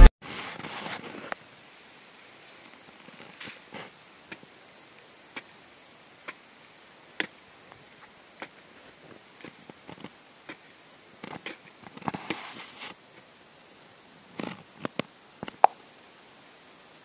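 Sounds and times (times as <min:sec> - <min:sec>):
hand tool scraping dry soil: 0:11.3 - 0:13.0.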